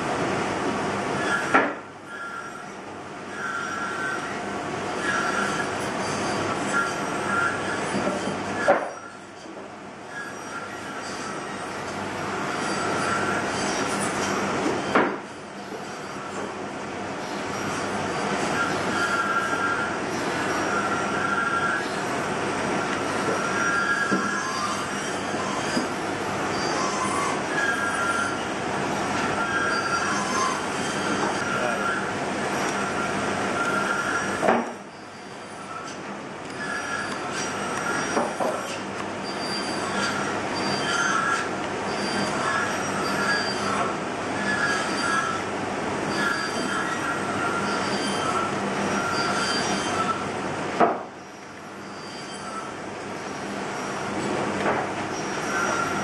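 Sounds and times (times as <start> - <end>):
steady background noise: 0.0 - 56.0
steady mechanical noise: 0.0 - 56.0
knife carving wood squeaking: 5.0 - 9.2, 17.3 - 22.0, 22.8 - 28.5, 29.2 - 45.4, 46.1 - 50.2, 55.1 - 56.0.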